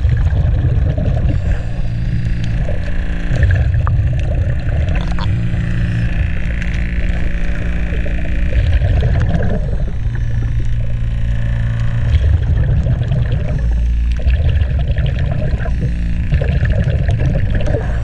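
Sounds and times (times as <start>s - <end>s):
underwater low hum and rumble: 0.0s - 18.0s
small clicks: 2.3s - 5.4s, 11.6s - 12.4s.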